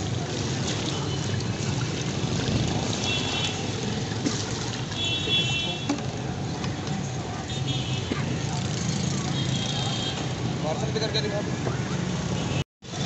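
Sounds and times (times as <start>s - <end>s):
street background noise: 0.0s - 13.0s.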